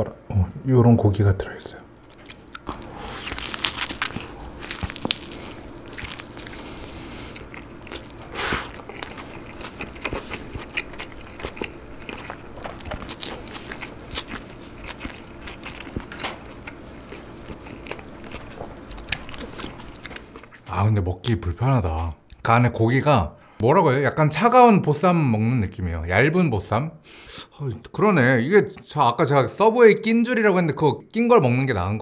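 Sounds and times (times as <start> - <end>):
person chewing food: 1.9 - 20.6.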